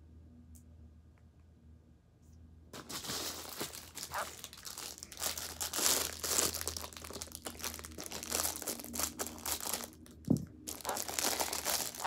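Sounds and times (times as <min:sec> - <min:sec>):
plastic bag crinkling: 0:02.8 - 0:12.0.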